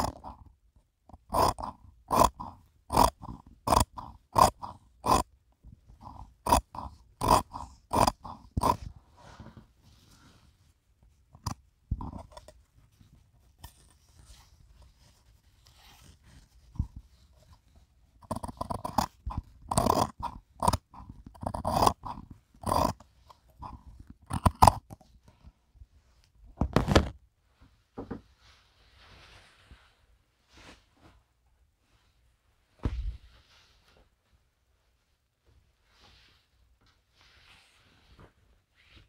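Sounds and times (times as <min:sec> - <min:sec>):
scissors snipping fabric: 0:18.2 - 0:23.0, 0:23.6 - 0:25.0.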